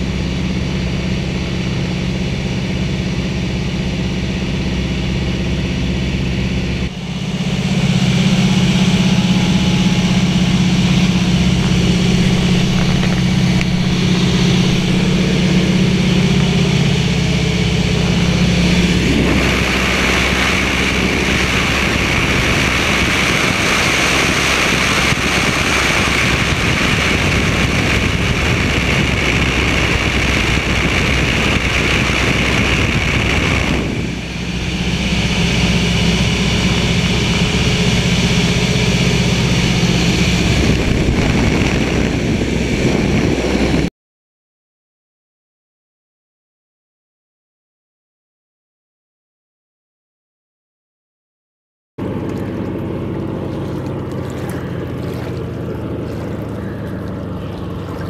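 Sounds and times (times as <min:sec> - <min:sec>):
propeller plane engine droning: 0:00.0 - 0:43.9, 0:52.0 - 0:58.0
wind rushing: 0:06.9 - 0:43.9.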